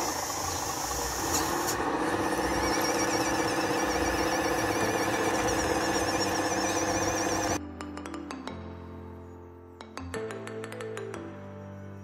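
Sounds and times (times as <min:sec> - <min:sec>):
model bulldozer motor whine: 0:00.0 - 0:07.6
high wavering squeal: 0:00.3 - 0:07.6.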